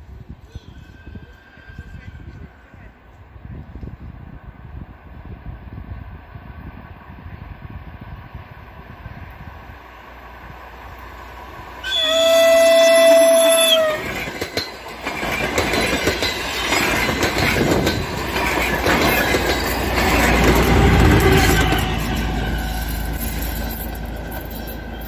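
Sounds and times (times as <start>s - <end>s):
train horn blast: 11.8s - 14.2s, 20.8s - 22.8s
train wheels clattering on rails: 11.9s - 25.0s.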